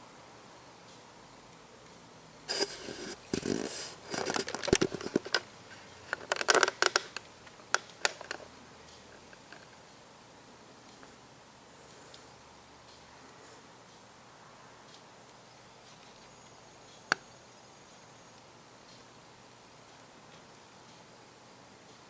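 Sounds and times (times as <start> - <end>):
handling rustling and scraping: 2.5 - 8.5
sharp irregular clicks: 6.1 - 9.8.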